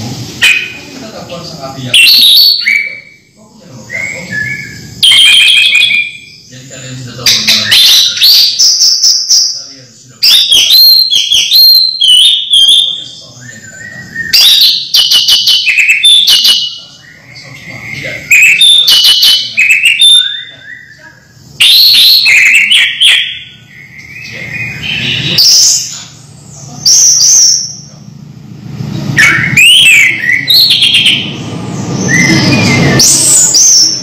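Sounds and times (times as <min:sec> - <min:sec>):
thrush singing whistled phrases: 0:00.4 - 0:00.8, 0:01.8 - 0:26.1, 0:29.2 - 0:34.0.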